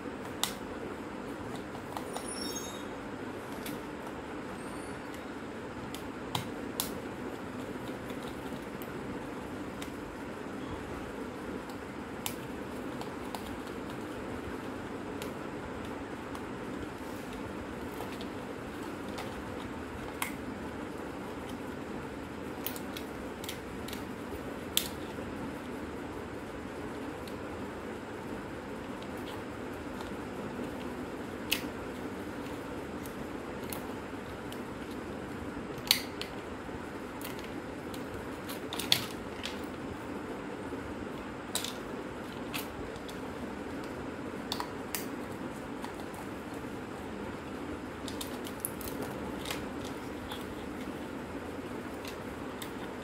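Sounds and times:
steady hum: 0:00.0 - 0:53.0
plastic clicks and snaps: 0:35.7 - 0:36.4, 0:41.1 - 0:43.2, 0:43.8 - 0:45.2.

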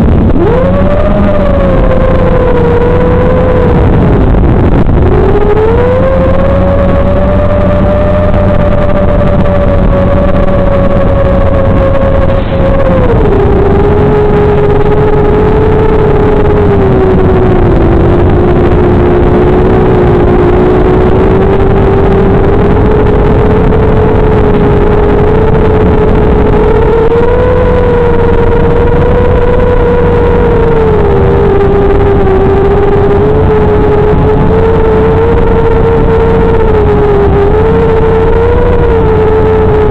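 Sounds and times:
quadcopter motors whining: 0:00.0 - 0:39.9.

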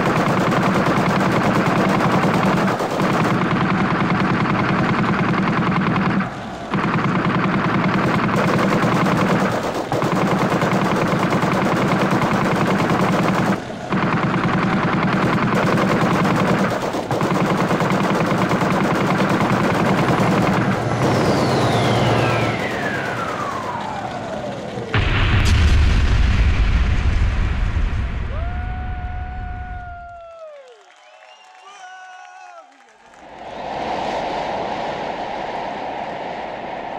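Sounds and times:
dense noisy electronic texture: 0:00.0 - 0:29.5
deep boom: 0:25.0 - 0:29.9.

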